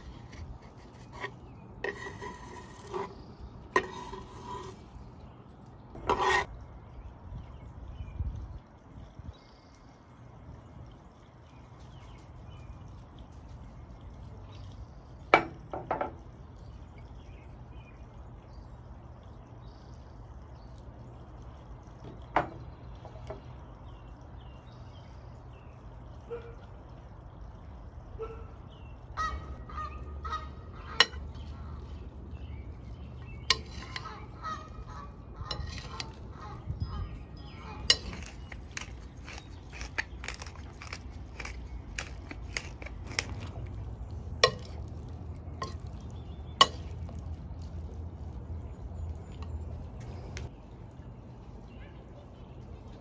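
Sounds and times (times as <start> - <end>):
fowl calling: 29.2 - 31.2, 33.8 - 36.7.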